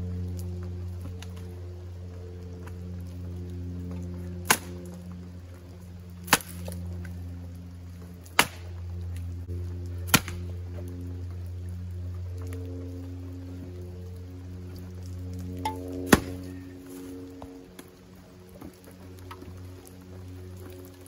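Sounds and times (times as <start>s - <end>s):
axe splitting firewood: 8.3s - 8.7s.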